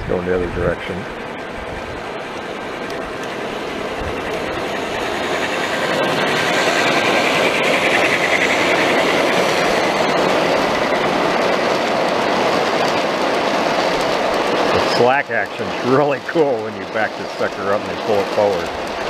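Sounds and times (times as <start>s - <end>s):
model train rolling on track: 0.0s - 19.0s.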